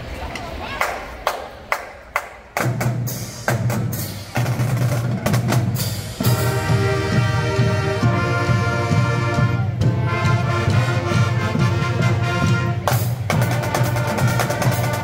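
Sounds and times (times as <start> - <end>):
snare and bass drums: 2.6 - 15.0
brass chords: 4.4 - 15.0.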